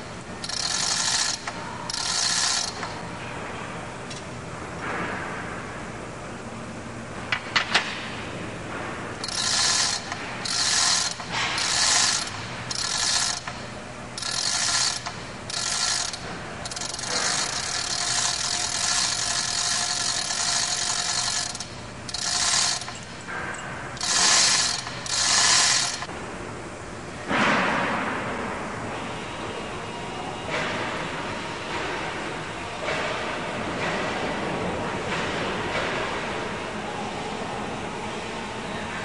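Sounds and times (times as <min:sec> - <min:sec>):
hoist chain rattling: 0:00.4 - 0:03.0, 0:09.2 - 0:13.6, 0:14.2 - 0:23.3, 0:24.0 - 0:26.1.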